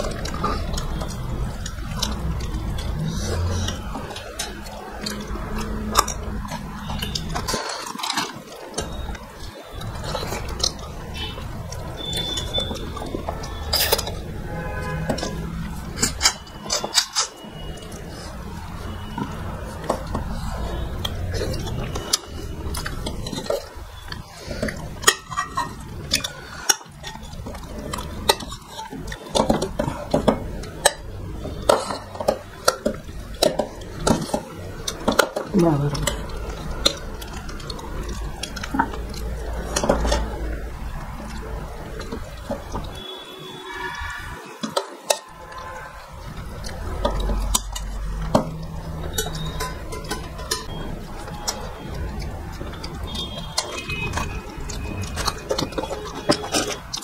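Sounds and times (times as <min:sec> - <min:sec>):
metal spoon clinking on pot: 0:00.0 - 0:18.0, 0:20.9 - 0:40.4, 0:44.7 - 0:52.2
chewing: 0:00.0 - 0:57.0
fingers mixing curry and rice: 0:00.0 - 0:57.0.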